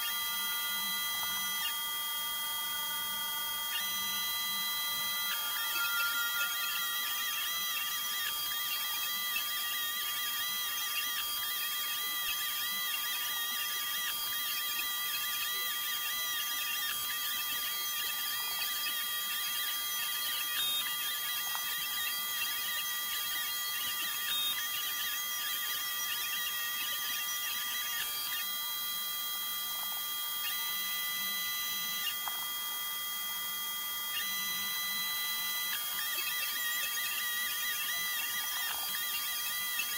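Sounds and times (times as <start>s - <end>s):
stepper motors whining: 0.0s - 29.4s, 34.1s - 39.9s.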